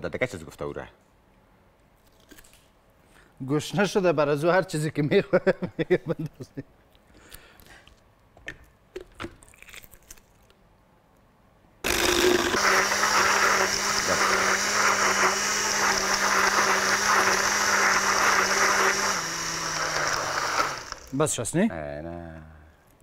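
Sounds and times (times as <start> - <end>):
electric blender running: 11.9 - 21.2.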